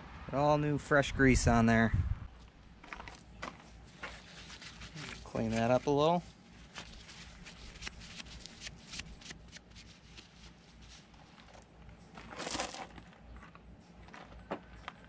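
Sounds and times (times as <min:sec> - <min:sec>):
paper towel wiping: 0:03.8 - 0:11.4
plastic gloves crinkling: 0:03.8 - 0:11.6.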